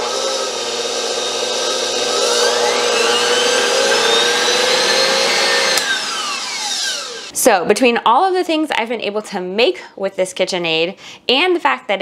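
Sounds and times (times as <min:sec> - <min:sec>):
stand mixer motor whine: 0:00.0 - 0:07.3.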